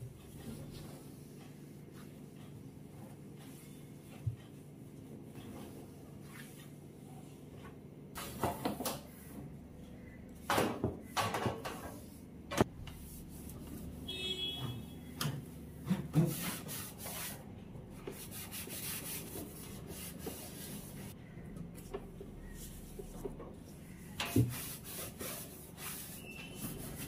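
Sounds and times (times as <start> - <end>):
objects clunking: 10.4 - 12.7
cloth rubbing on hard surfaces: 24.4 - 27.0.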